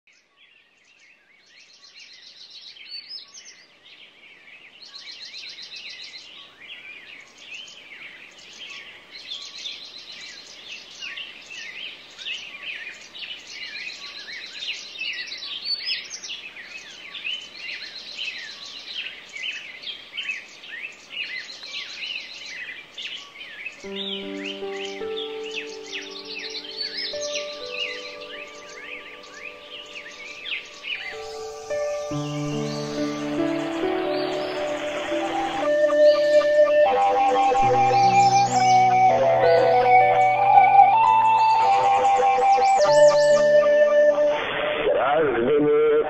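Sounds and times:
songbirds chirping and trilling: 0.1 - 45.2
held music notes: 23.8 - 44.6.

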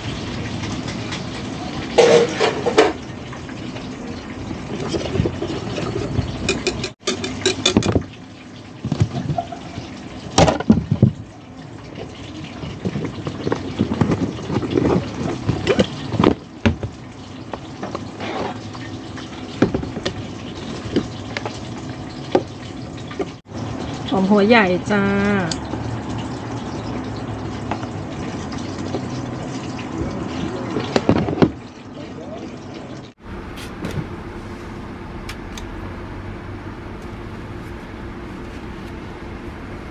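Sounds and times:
utensils and containers clattering: 0.0 - 8.2, 8.8 - 11.2, 11.8 - 23.4.

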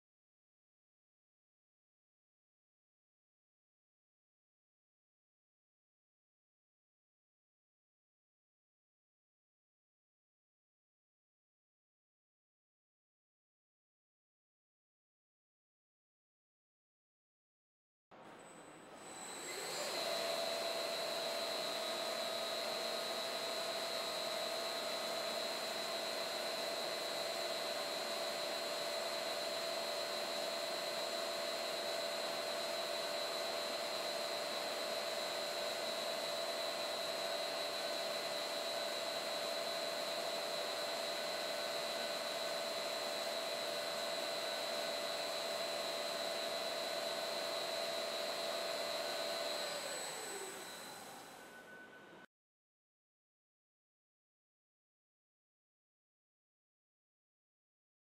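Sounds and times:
machine hum with whine and hiss: 18.2 - 23.5, 25.3 - 52.3.

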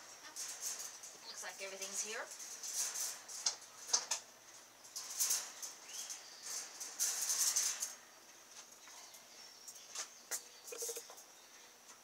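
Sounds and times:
metal wire mesh rattling: 0.2 - 8.1.

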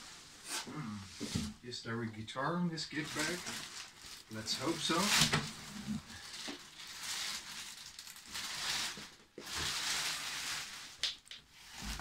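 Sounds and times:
plastic wrapping crinkling: 2.9 - 12.0.

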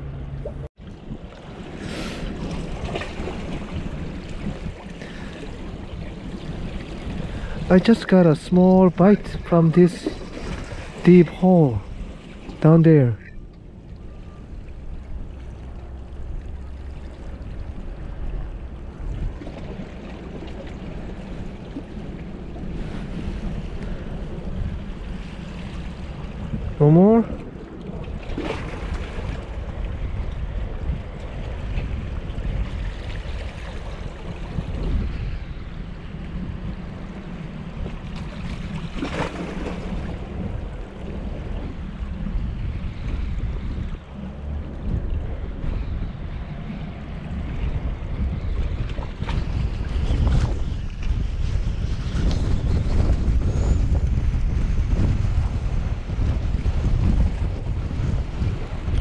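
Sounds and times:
low rumble: 0.0 - 59.0
wind buffeting microphone: 0.0 - 59.0
seawater washing among rocks: 0.5 - 13.2, 16.6 - 53.4
waves washing against rocks: 1.1 - 13.2
water splash: 28.0 - 29.6, 38.0 - 40.4.

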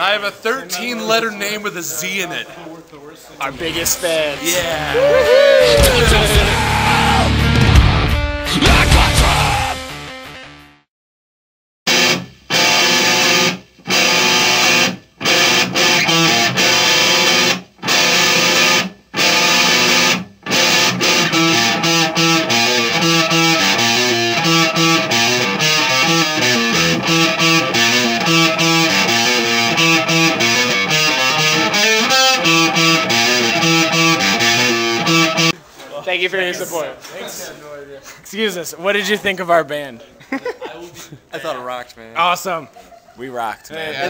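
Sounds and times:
distorted electric guitar: 3.5 - 10.8, 11.9 - 35.6.

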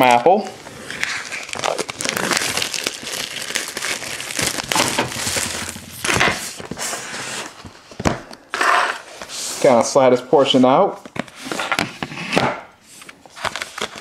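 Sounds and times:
plastic shrink-wrap crinkling: 0.6 - 8.0.

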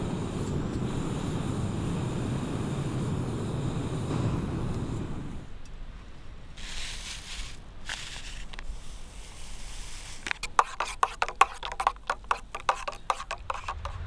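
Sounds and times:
soft hiss: 0.0 - 11.1
stirrer clinking in metal mug: 10.2 - 14.0.

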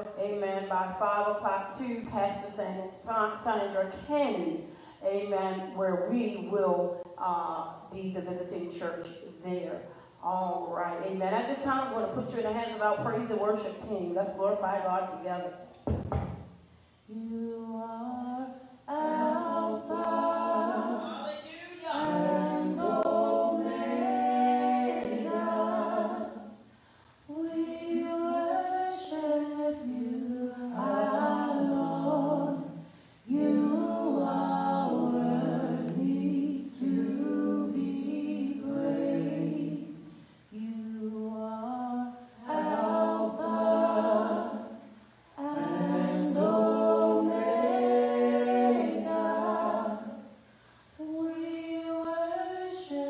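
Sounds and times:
choir singing a cappella: 17.1 - 50.4, 51.0 - 53.0.

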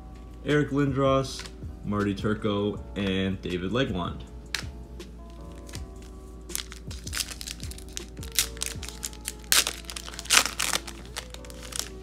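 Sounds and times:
foil wrapper crinkling and tearing: 5.3 - 12.0.

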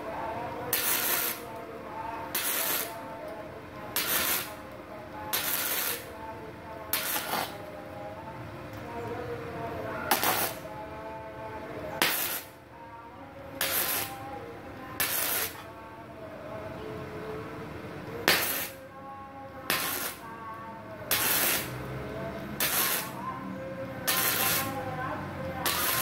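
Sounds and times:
welder arc hissing: 0.7 - 1.5, 2.3 - 3.0, 4.0 - 4.6, 5.3 - 6.1, 6.9 - 7.6, 10.1 - 10.6, 12.0 - 12.6, 13.6 - 14.2, 15.0 - 15.6, 18.3 - 18.8, 19.7 - 20.2, 21.1 - 21.8, 22.6 - 23.2, 24.1 - 24.8, 25.6 - 26.0.

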